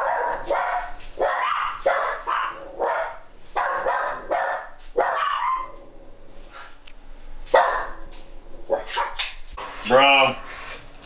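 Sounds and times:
dogs barking: 0.0 - 6.0, 7.4 - 9.4.

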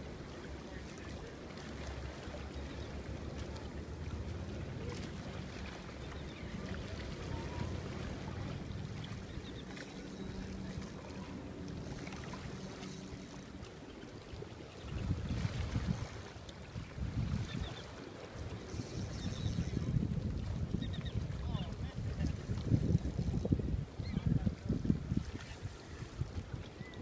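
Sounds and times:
wind buffeting microphone: 14.8 - 27.0.

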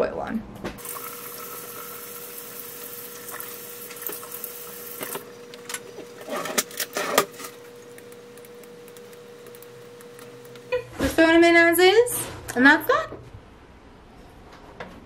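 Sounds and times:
kitchen tap running: 0.8 - 10.7
faint steady hum: 0.8 - 12.1.

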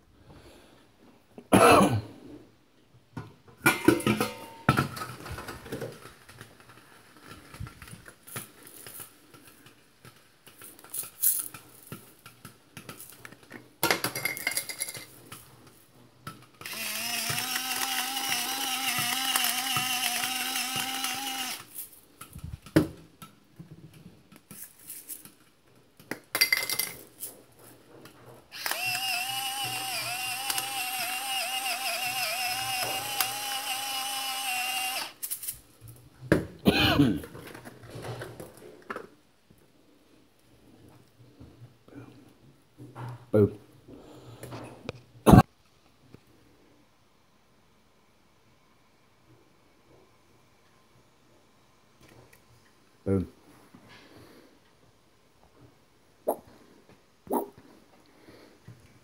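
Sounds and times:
pots and utensils clattering: 3.6 - 5.8, 13.9 - 15.2
electric pepper mill grinding: 16.6 - 21.9, 28.5 - 35.5.

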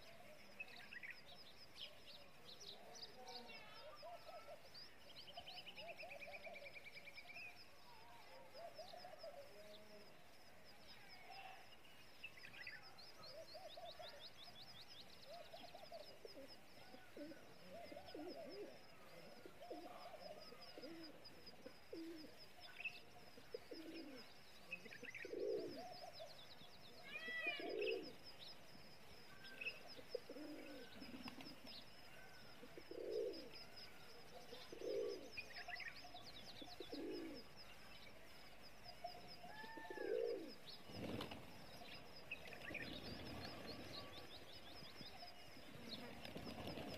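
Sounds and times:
small birds twittering: 0.0 - 46.9
pigeons cooing: 15.3 - 22.4, 23.4 - 26.3, 27.3 - 28.2, 29.9 - 33.6, 34.4 - 35.4, 36.6 - 37.5, 39.5 - 44.4
wings flapping: 31.1 - 31.7, 40.8 - 44.2, 45.7 - 46.9.

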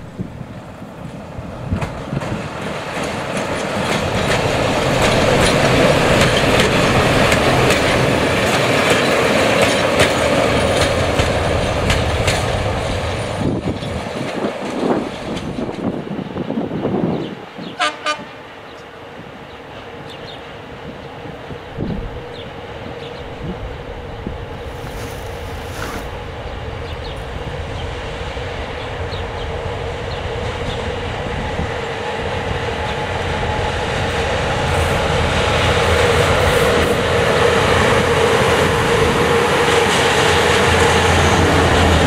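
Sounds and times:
wheels clicking over rail joints: 1.1 - 15.8
locomotive engine running: 2.6 - 14.8.

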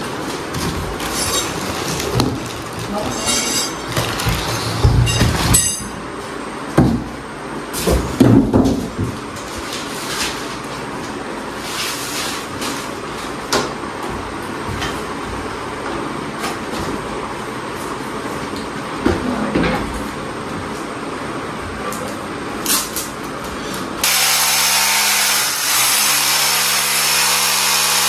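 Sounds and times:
cardboard and plastic rustling: 0.1 - 5.4.

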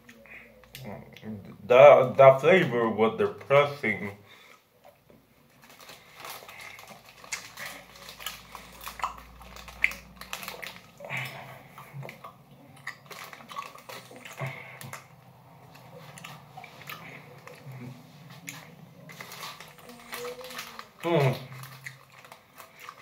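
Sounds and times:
chewing and mouth noises: 4.5 - 23.0
candy bag crinkling: 5.5 - 23.0.

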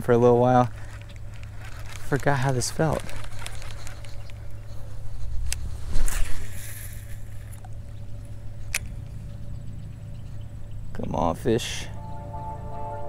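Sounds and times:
fishing reel handling: 0.7 - 4.4
sharp clicks: 1.0 - 4.6.

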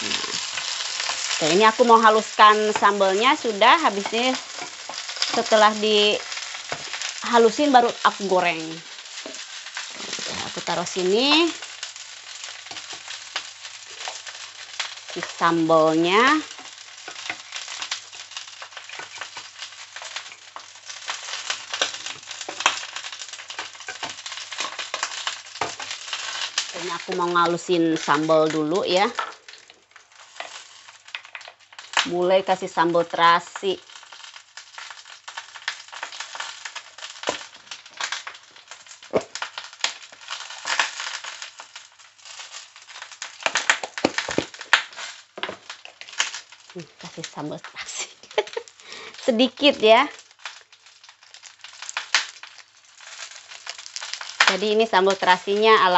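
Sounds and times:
pestle crushing in mortar: 43.5 - 45.7.

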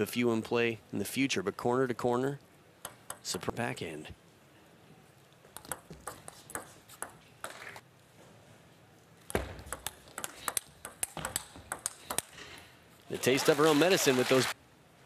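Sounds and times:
table tennis ball pocks: 9.3 - 12.4.

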